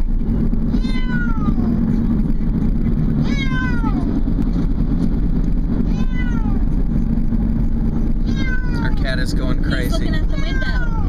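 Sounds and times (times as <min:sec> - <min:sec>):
car rumble: 0:00.0 - 0:11.0
cat meowing in distress: 0:00.7 - 0:01.8, 0:03.2 - 0:04.1, 0:05.8 - 0:06.7, 0:08.2 - 0:09.0, 0:10.2 - 0:11.0.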